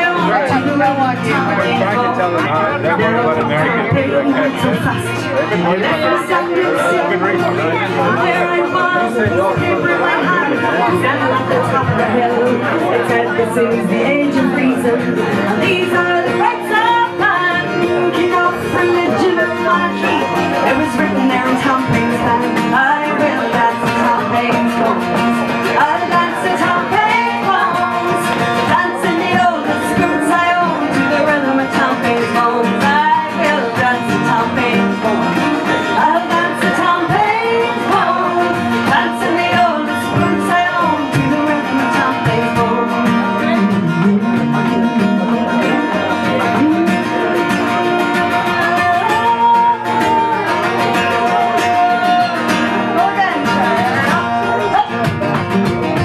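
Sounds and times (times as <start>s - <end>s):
woman singing: 0.0s - 2.0s, 2.8s - 55.2s
acoustic guitars strumming: 0.0s - 56.0s.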